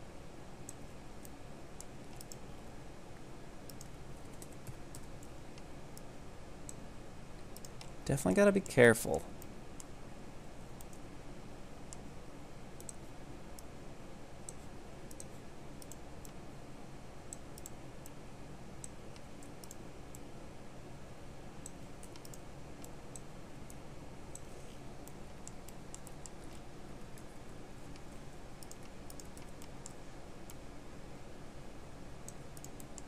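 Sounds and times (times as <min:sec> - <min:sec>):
steady low hum: 0:00.0 - 0:33.0
mouse and keyboard clicks: 0:01.8 - 0:02.4, 0:03.7 - 0:05.7, 0:07.5 - 0:08.0, 0:21.6 - 0:23.3, 0:27.9 - 0:30.6, 0:32.3 - 0:33.0.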